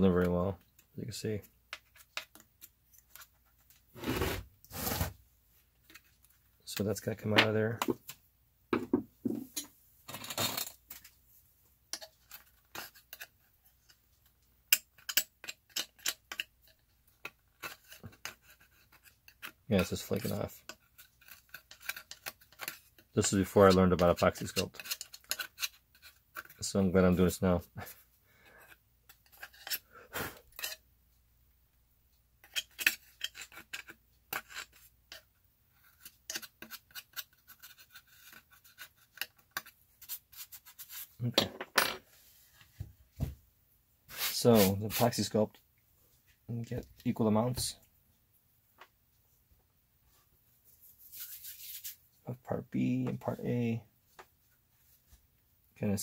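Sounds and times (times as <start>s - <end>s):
clay filler being scraped out: 11.9s - 14.0s, 14.7s - 26.7s, 27.8s - 30.8s, 32.4s - 41.2s.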